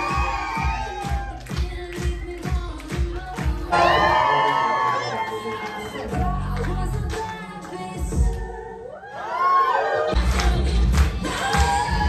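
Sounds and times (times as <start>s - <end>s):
pop music with deep beat: 0.0s - 8.9s, 10.2s - 12.0s
loud song: 0.0s - 9.4s.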